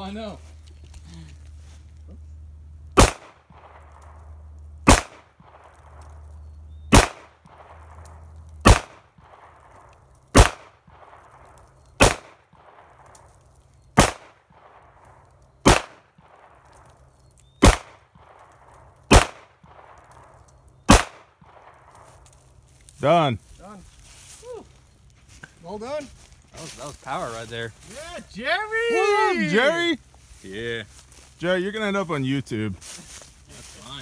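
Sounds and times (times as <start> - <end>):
handgun shots with echo: 3.0 - 3.8, 4.9 - 5.7, 6.9 - 7.8, 8.6 - 9.0, 10.4 - 10.7, 12.0 - 12.4, 14.0 - 14.4, 15.6 - 16.4, 17.6 - 18.0, 19.1 - 19.5, 20.9 - 21.7.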